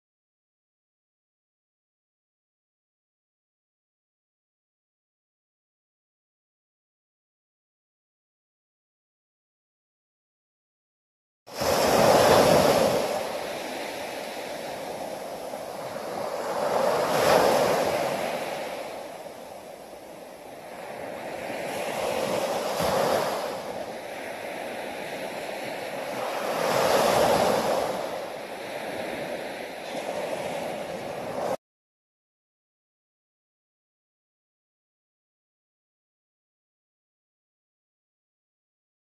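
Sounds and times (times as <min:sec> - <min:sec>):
small waves breaking on beach: 0:11.5 - 0:31.6.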